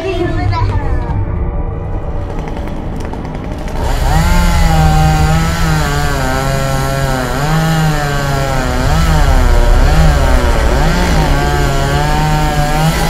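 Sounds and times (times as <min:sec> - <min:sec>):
chainsaw engine revving: 0:03.6 - 0:13.0.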